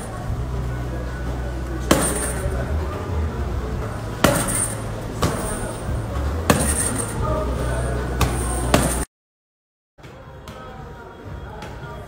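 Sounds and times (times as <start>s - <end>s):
punches hitting heavy bag: 1.8s - 2.5s, 4.2s - 5.7s, 6.4s - 7.2s, 8.2s - 9.1s.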